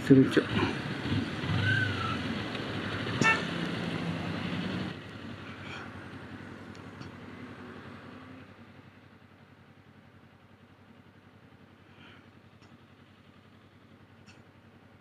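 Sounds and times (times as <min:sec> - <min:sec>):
street traffic and engine noise: 0:00.0 - 0:15.0
vehicle horn toot: 0:03.2 - 0:03.6.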